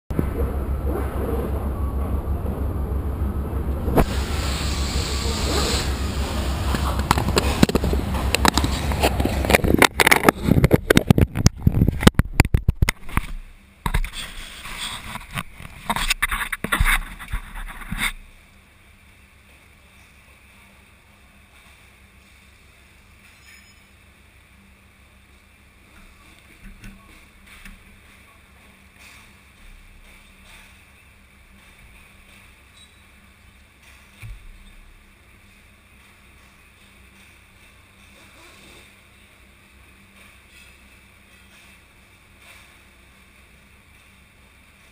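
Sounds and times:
motorcycle engine throbbing: 0.1 - 9.9
rushing noise: 0.1 - 12.3
sharp clicks and knocks: 6.7 - 14.2.

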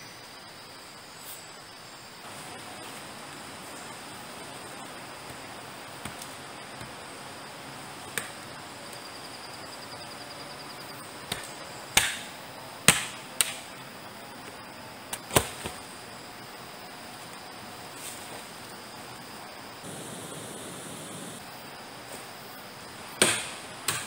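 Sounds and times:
forest hiss: 0.0 - 24.0
machete chopping wood: 11.3 - 13.7, 23.2 - 24.0.

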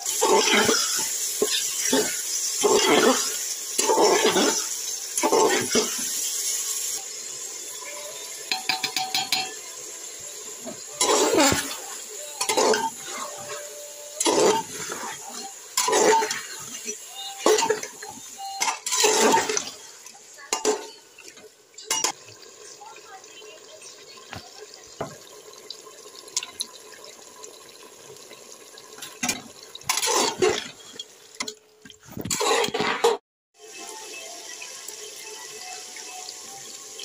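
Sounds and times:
metal spoon scraping a pot: 14.2 - 18.0, 18.6 - 19.7, 32.2 - 33.2.

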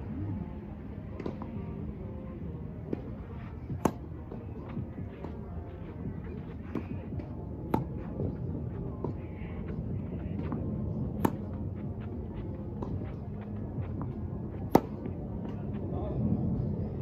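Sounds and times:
low background rumble: 0.0 - 17.0
tennis ball bouncing: 1.1 - 1.7, 2.8 - 15.9
tennis ball struck by rackets: 1.2 - 1.6, 2.9 - 15.7.

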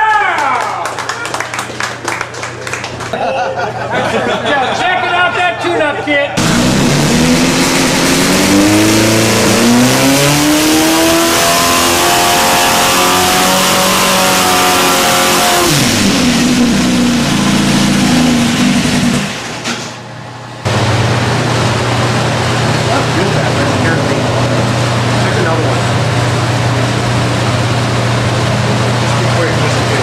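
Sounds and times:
engine revving: 6.4 - 19.7.

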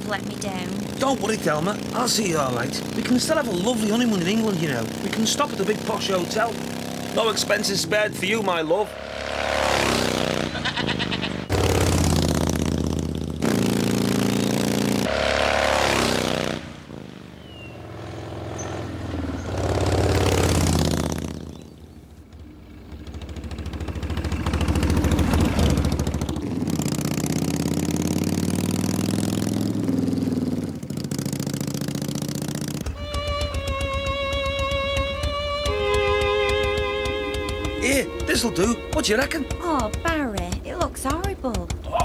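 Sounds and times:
motorcycle engine revving: 0.0 - 42.0.

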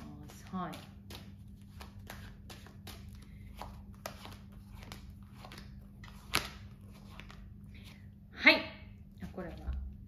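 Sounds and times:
cards being shuffled: 0.0 - 8.0.

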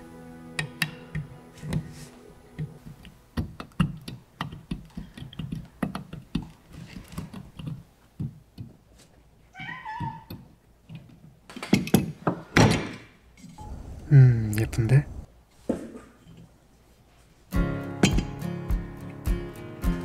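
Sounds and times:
soft background music: 0.0 - 3.0, 17.5 - 20.0
metal tool clicking and tapping: 0.6 - 1.3, 3.4 - 6.5.

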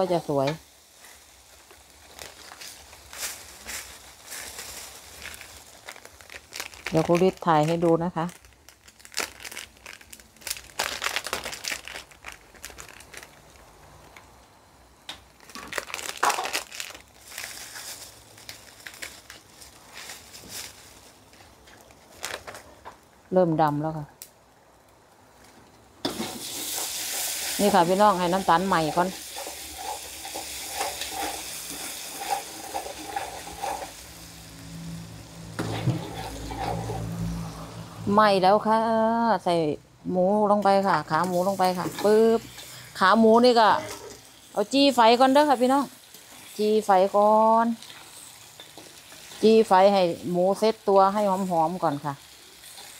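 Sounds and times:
sugar sizzling: 0.0 - 14.2, 15.1 - 22.4, 26.0 - 38.7, 40.5 - 52.9
sauce bubbling and crackling in wok: 0.0 - 14.3, 26.0 - 38.0, 41.0 - 52.9
metal spatula scraping a wok: 29.1 - 37.6.

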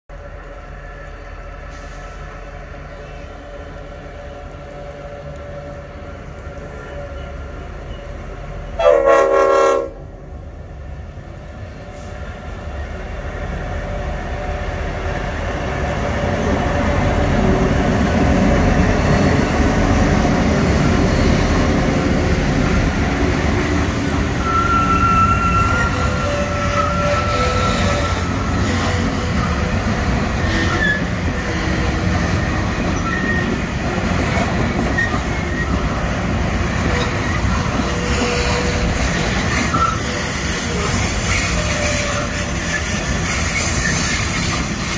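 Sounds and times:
train wagons rolling past: 0.1 - 44.9
locomotive horn blast: 8.8 - 10.0
wheel squeals: 24.4 - 28.4, 30.4 - 31.6, 32.8 - 44.9.

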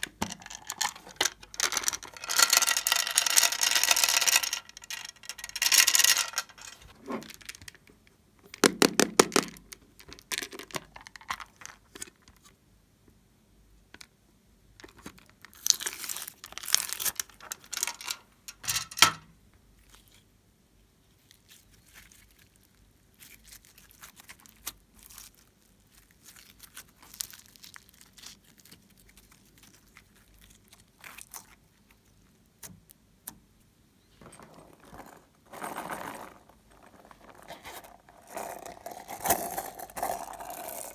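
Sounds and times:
slime crackling and popping: 22.1 - 32.7
handling noise: 34.1 - 40.9.

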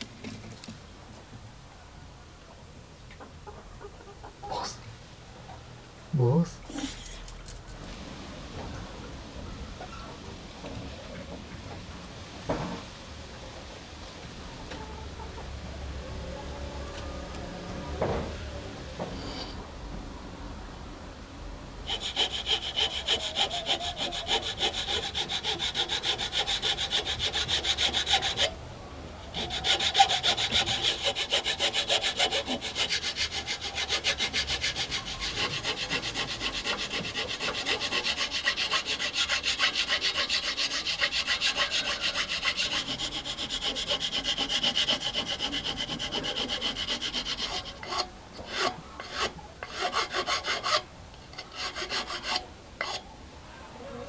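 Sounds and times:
hand file rasping on wood: 21.9 - 28.5, 29.3 - 50.8, 51.4 - 53.0.

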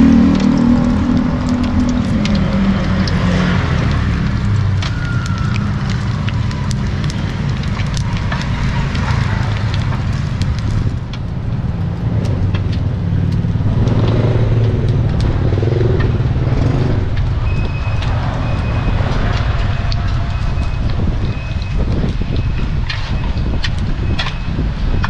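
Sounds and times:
dough sizzling in hot oil: 0.0 - 12.1
street traffic rumble: 0.0 - 25.0.

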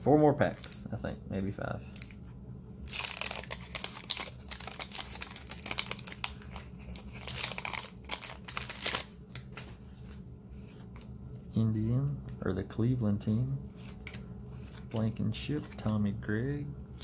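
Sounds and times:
wrapper tearing and crinkling: 2.8 - 10.1.

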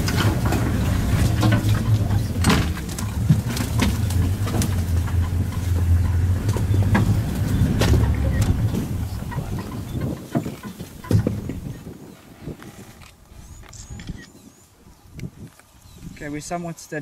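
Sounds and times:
knocks and rattles: 0.0 - 11.8
vehicle engine humming: 0.0 - 12.0.

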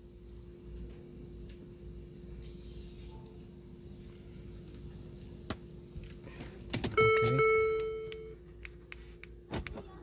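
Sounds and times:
low hum in car cabin: 0.0 - 10.0
high-pitched trill: 7.0 - 8.4.

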